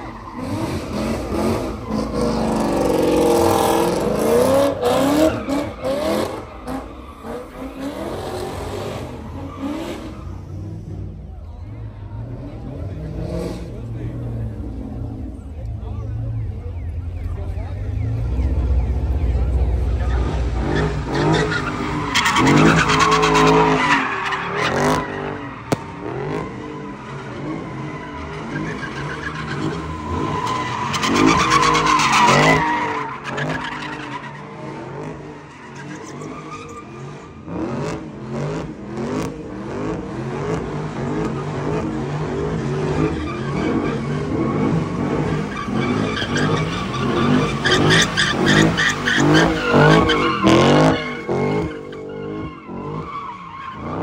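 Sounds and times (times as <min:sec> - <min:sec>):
car engine revving: 0:00.0 - 0:54.0
tyres squealing: 0:43.0 - 0:54.0.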